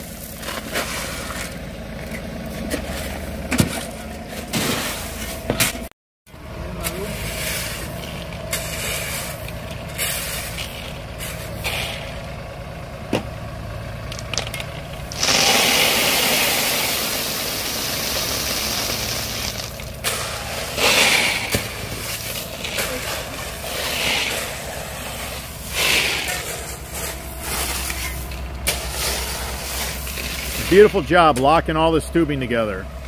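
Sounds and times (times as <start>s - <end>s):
shovel scraping gravel: 0.0s - 1.6s, 2.6s - 5.8s, 6.8s - 12.3s, 15.0s - 31.1s
loader engine running: 0.0s - 33.0s.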